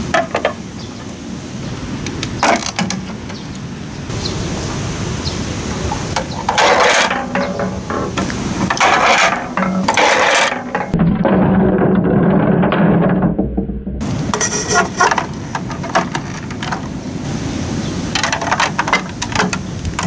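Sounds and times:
low rumble: 0:10.9 - 0:14.4.

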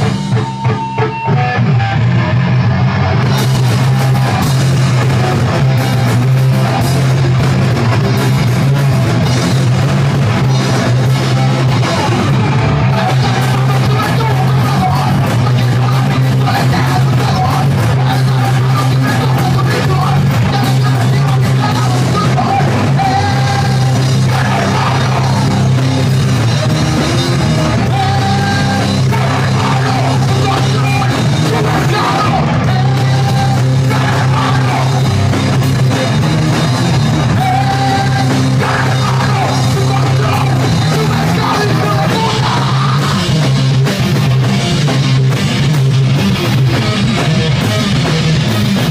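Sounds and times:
bass guitar: 0:00.0 - 0:48.9
drum kit: 0:00.0 - 0:48.9
electric guitar: 0:00.0 - 0:48.9
person yelling vocals: 0:12.9 - 0:25.7, 0:27.7 - 0:35.0, 0:37.3 - 0:43.3.

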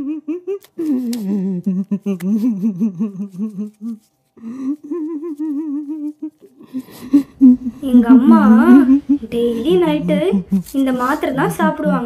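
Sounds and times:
person humming a tune: 0:00.0 - 0:11.4.

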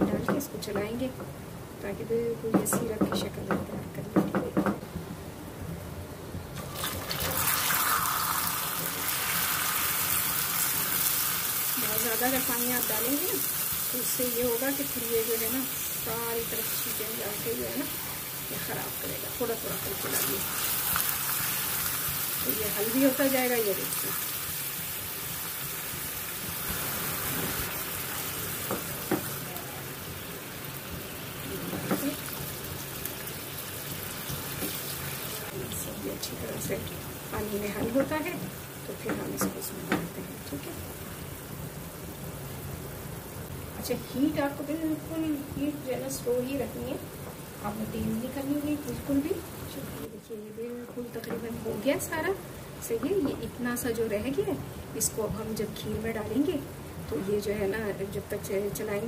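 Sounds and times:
water poured into pan: 0:06.6 - 0:11.7
caramel hissing and bubbling: 0:06.6 - 0:39.5.

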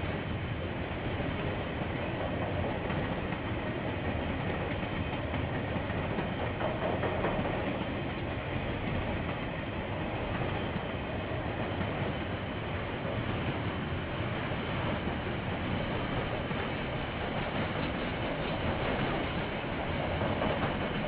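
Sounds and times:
train wheels rumbling: 0:00.0 - 0:21.0.

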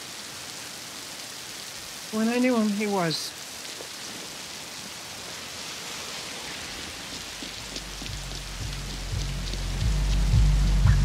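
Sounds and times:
heavy rain pouring: 0:00.0 - 0:11.0
drips splashing: 0:03.4 - 0:11.0
pulsing bass music: 0:07.8 - 0:11.0.

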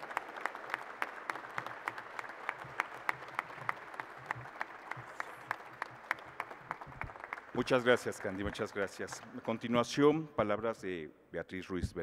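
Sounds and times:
person clapping nearby: 0:00.0 - 0:07.7
audience applauding: 0:00.0 - 0:10.2.

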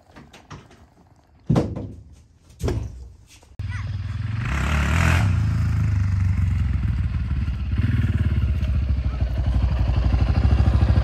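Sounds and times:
dirt bike engine running: 0:03.6 - 0:11.0.

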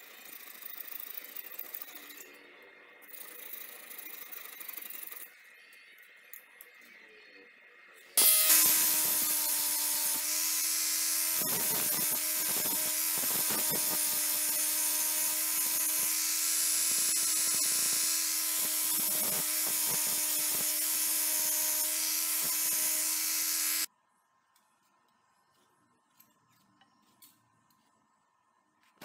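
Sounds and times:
power tool motor whine: 0:08.2 - 0:23.9.

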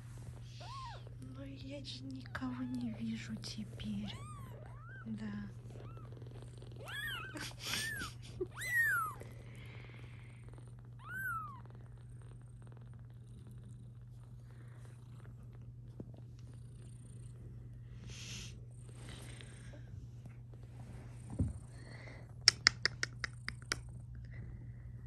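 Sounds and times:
cat purring: 0:00.0 - 0:25.0
kittens mewing: 0:04.0 - 0:09.4, 0:11.0 - 0:11.6.

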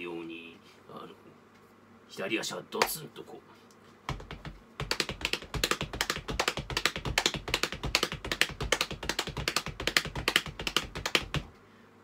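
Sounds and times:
hands patting thighs: 0:02.8 - 0:03.0, 0:04.1 - 0:11.5
sneakers tapping floor: 0:04.1 - 0:11.4.

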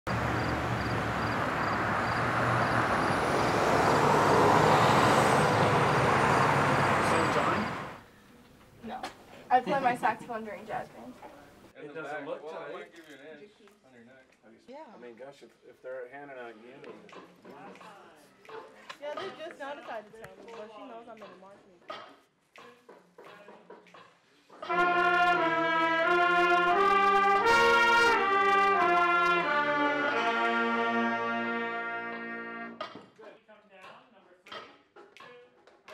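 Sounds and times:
road traffic rush: 0:00.1 - 0:08.1
vehicle passing: 0:00.1 - 0:08.1
school wind band playing: 0:00.2 - 0:08.0, 0:24.7 - 0:32.8.

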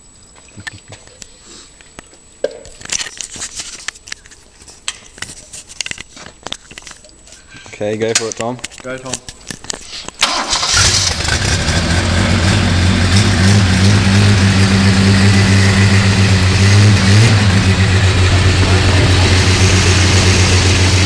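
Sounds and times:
car engine idling: 0:10.3 - 0:21.0.

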